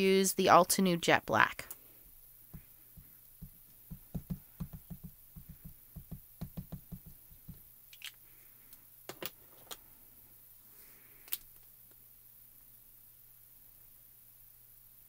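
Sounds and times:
ink pad dabbing taps: 0:02.5 - 0:07.6.

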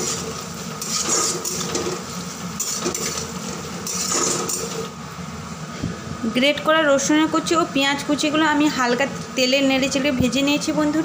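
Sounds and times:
onion and garlic sizzling in oil: 0:00.0 - 0:05.6
metal spatula scraping pan: 0:00.8 - 0:02.0, 0:02.6 - 0:04.9.

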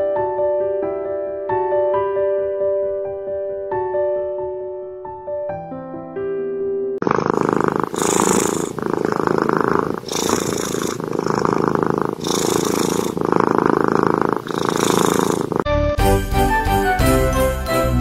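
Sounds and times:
cat purring: 0:07.0 - 0:15.7.

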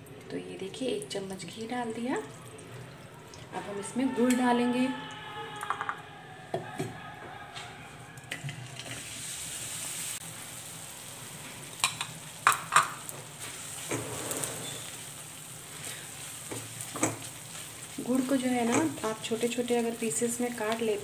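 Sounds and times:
sizzling in hot ghee: 0:08.3 - 0:21.0
spatula stirring in pan: 0:12.8 - 0:20.1.

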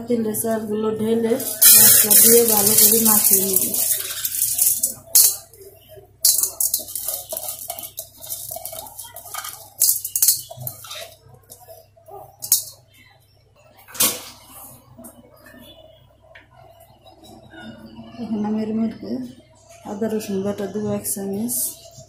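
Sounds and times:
grains rustling in metal pot: 0:01.4 - 0:05.6, 0:06.2 - 0:11.2.

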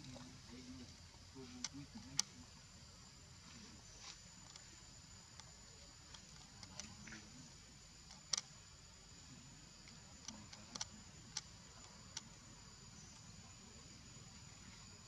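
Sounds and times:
sharp clicks and ticks: 0:01.6 - 0:02.3, 0:09.8 - 0:12.4.

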